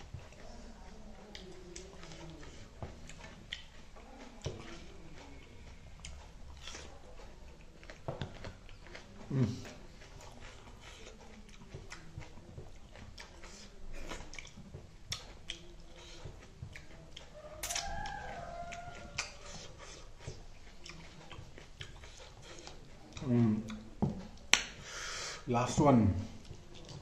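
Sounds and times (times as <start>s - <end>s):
person chewing: 0.0s - 27.0s
mouth smacks and clicks: 6.0s - 25.2s.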